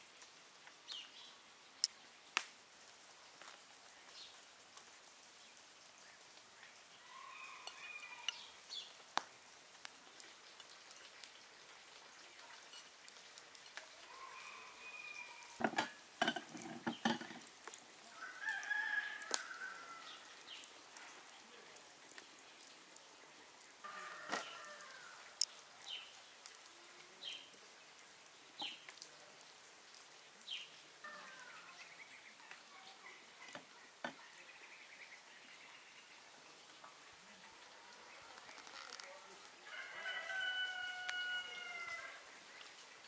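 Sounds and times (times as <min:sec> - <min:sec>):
rooster crowing: 0:07.0 - 0:08.5, 0:14.0 - 0:15.7, 0:18.1 - 0:20.2, 0:23.8 - 0:25.3, 0:39.6 - 0:42.3.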